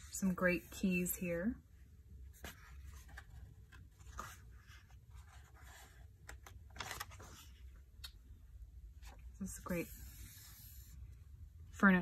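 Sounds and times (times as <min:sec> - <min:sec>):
fingers rustling paper pages: 0:02.4 - 0:08.2
page turning: 0:02.4 - 0:08.2.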